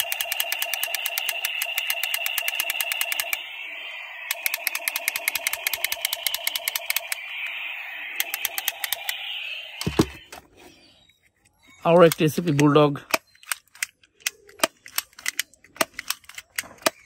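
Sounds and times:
toy gun rattling clicks: 0.0 - 3.6, 4.2 - 7.2, 8.2 - 9.2, 12.0 - 17.0.

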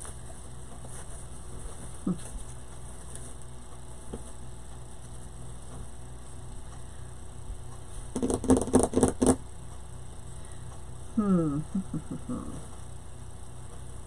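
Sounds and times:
low electrical hum: 0.0 - 14.0
rustling and knocking: 8.0 - 9.4.

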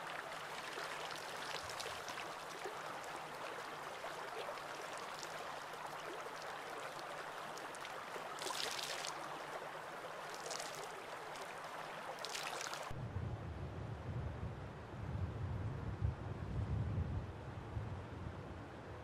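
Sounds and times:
stream flowing over rocks: 0.0 - 13.0
short splashes: 8.4 - 9.2.

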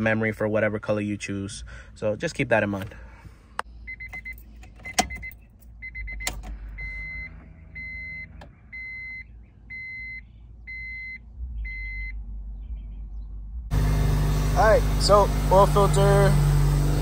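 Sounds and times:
high electronic beep: 3.9 - 12.2
low rumble: 11.2 - 13.8.

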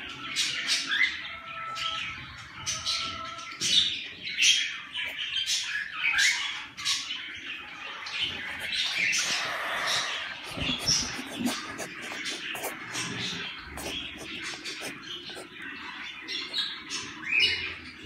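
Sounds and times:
chicks giving raspy squawks: 4.7 - 18.0.

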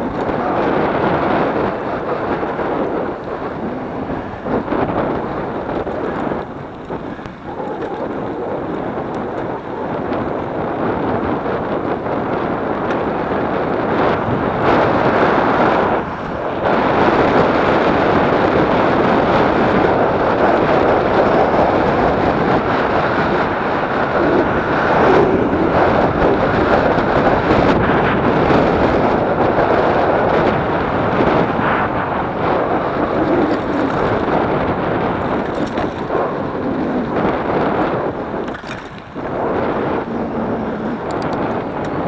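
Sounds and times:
wind buffeting microphone: 0.0 - 42.0.

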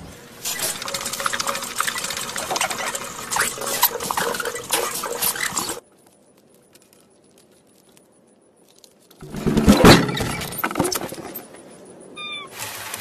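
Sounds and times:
hamster wheel rattling and clicking: 0.5 - 5.8.

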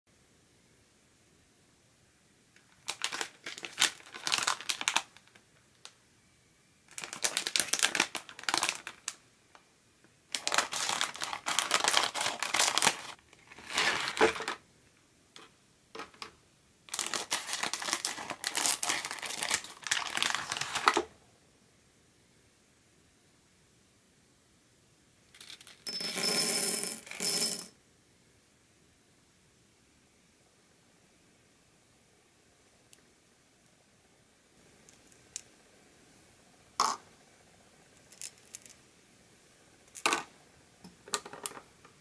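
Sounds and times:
plastic packets crinkling: 2.7 - 5.4, 6.9 - 9.2, 10.4 - 14.6, 16.9 - 21.0.

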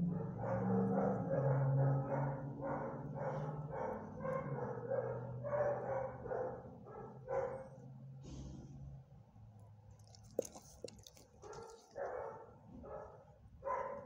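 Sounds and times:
dog panting: 10.0 - 12.0.

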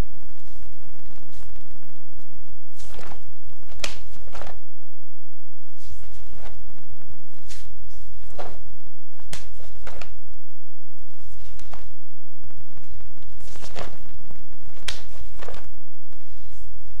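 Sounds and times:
low tape hum: 0.0 - 17.0
bare feet sliding on floor: 2.7 - 4.6, 5.7 - 6.6, 7.4 - 8.6, 11.1 - 11.9, 13.3 - 14.0
cloth snapping and swishing: 2.7 - 4.6, 5.7 - 6.6, 7.4 - 8.6, 9.2 - 10.2, 11.1 - 12.0, 13.3 - 14.0, 14.7 - 15.7.

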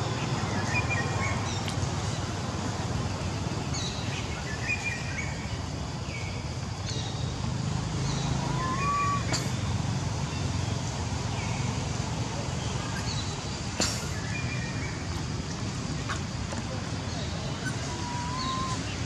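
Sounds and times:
low background noise: 0.0 - 19.0
rising tonal bird call: 8.2 - 9.4, 17.3 - 19.0
bird chirps: 12.6 - 16.2, 17.0 - 19.0.

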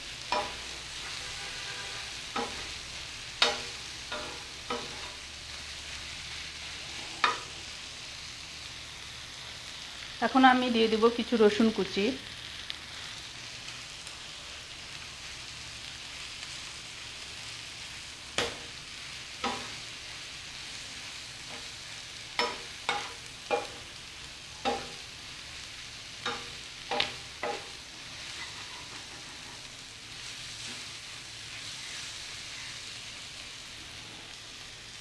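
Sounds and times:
food sizzling in oil: 0.0 - 35.0
spatula scraping a pan: 0.2 - 7.7, 19.4 - 20.1, 21.4 - 24.0, 24.6 - 25.4, 26.2 - 30.9.

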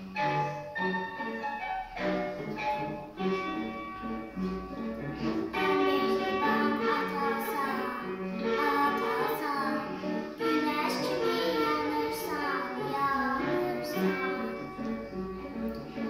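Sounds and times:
instrumental backing music: 0.0 - 16.0
girl singing: 5.5 - 15.2.

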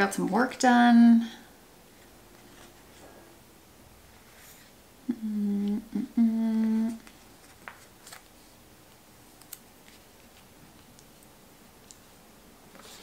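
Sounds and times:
woman humming: 5.0 - 7.1.

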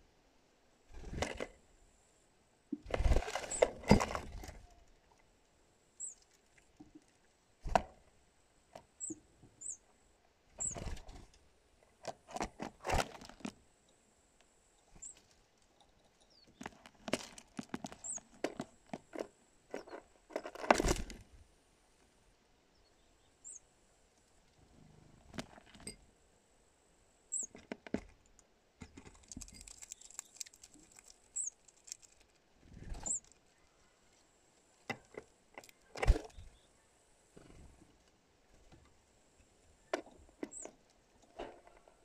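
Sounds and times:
bird chirps: 6.0 - 6.2, 9.0 - 9.9, 10.6 - 10.8, 18.0 - 18.3, 22.7 - 23.6, 27.3 - 27.6, 31.4 - 31.6, 33.0 - 34.0, 36.2 - 36.9
bird scratching and tapping: 15.8 - 21.0, 28.8 - 32.4.

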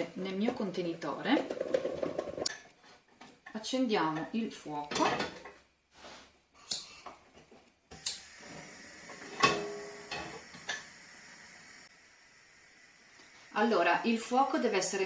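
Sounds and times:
gas flame hissing: 7.9 - 15.0.

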